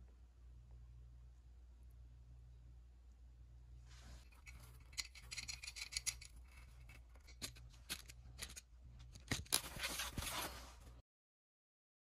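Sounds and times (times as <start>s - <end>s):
scratching and rubbing: 3.8s - 11.0s.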